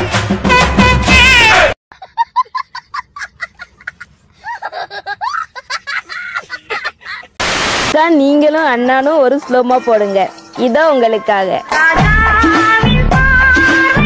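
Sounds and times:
loud music: 0:00.0 - 0:01.8
boy laughing: 0:01.9 - 0:07.4
boy squealing: 0:02.8 - 0:07.4.

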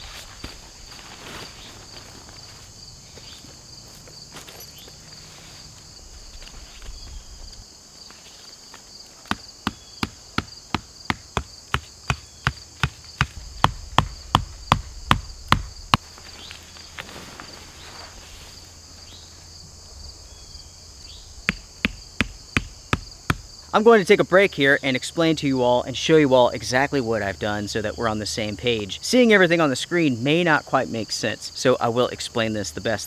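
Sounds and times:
footsteps in dry leaves: 0:00.0 - 0:09.2, 0:16.0 - 0:19.2
insects buzzing: 0:00.0 - 0:33.0
hatchet striking wood: 0:09.3 - 0:15.7, 0:21.5 - 0:23.5.

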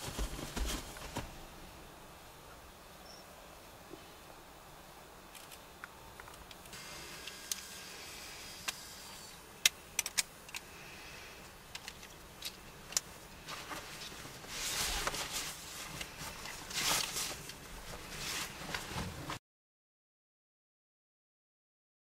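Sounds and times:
handling rustling and rubbing: 0:00.0 - 0:01.6, 0:11.7 - 0:19.4
faint hiss: 0:00.0 - 0:18.8
sharp clicks: 0:09.6 - 0:10.7.

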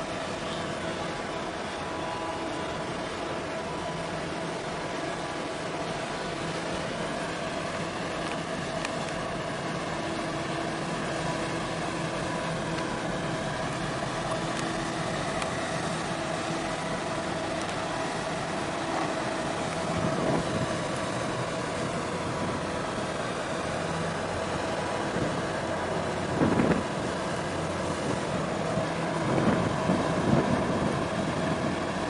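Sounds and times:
boat engines droning: 0:00.0 - 0:32.0
water: 0:00.0 - 0:32.0
wind noise: 0:19.8 - 0:20.9, 0:26.2 - 0:27.3, 0:28.0 - 0:32.0.

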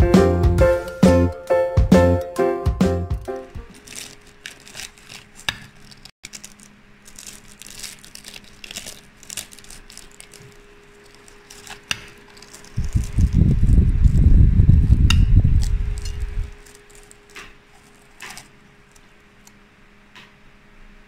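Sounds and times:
pastry crust crackling: 0:03.5 - 0:19.6
low rumbling noise: 0:12.8 - 0:16.6.

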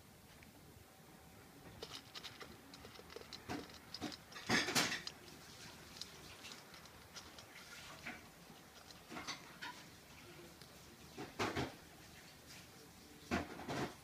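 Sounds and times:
cat crunching dry kibble: 0:01.7 - 0:11.5
kibble knocking in metal bowl: 0:01.8 - 0:09.8.

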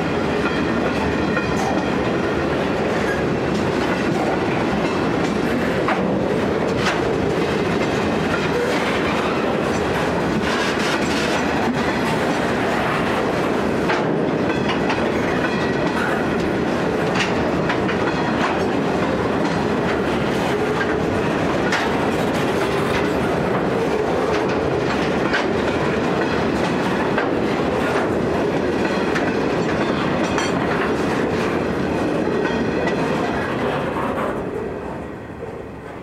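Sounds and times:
train wheels rumbling on rail: 0:00.0 - 0:36.0
clicks over rail joints: 0:13.8 - 0:31.6.

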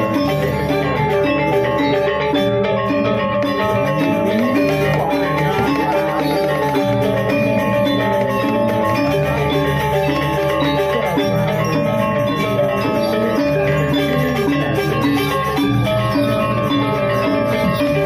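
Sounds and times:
metallophones ringing: 0:00.0 - 0:18.0.

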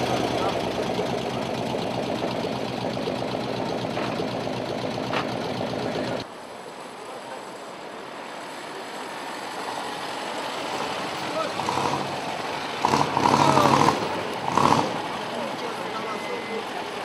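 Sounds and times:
car engine running: 0:00.0 - 0:06.2
sports car approaching over cobbles: 0:00.0 - 0:17.0.

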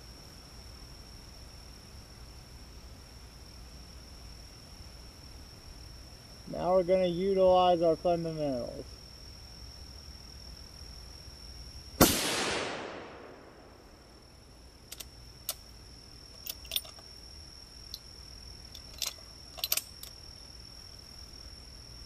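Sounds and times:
rifle shot: 0:12.0 - 0:13.9
rifle bolt clicking: 0:16.4 - 0:17.0, 0:18.8 - 0:20.1.

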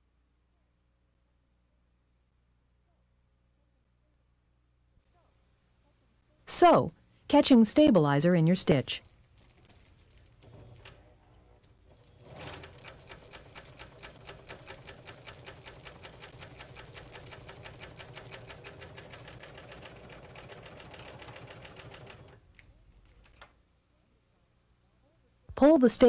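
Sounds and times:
serger sewing machine clatter: 0:10.2 - 0:22.4.

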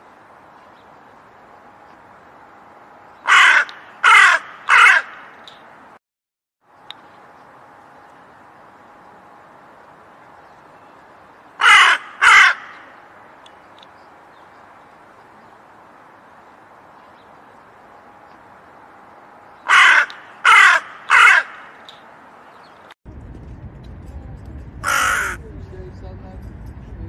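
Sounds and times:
crow cawing: 0:03.2 - 0:05.4, 0:11.6 - 0:13.0, 0:19.6 - 0:21.9, 0:24.8 - 0:25.4
low rumble: 0:23.1 - 0:27.0.

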